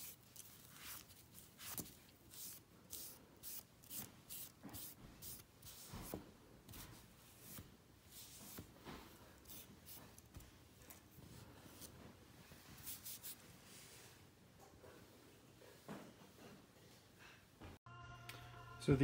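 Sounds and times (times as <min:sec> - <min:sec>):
knife scraping glove: 0:00.0 - 0:06.2.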